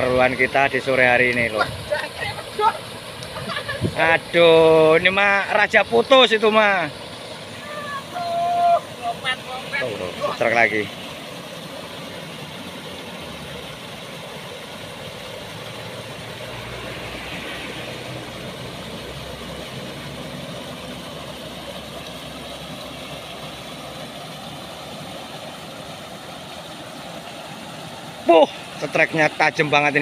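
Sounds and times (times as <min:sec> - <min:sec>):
water rushing over a weir: 0:00.0 - 0:30.0
low engine rumble: 0:14.7 - 0:23.8.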